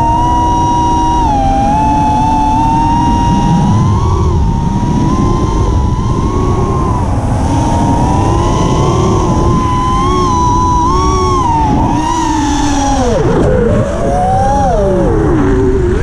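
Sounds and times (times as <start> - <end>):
electric motor and propeller whine: 0.0 - 16.0
wind rumble on microphone: 0.0 - 16.0.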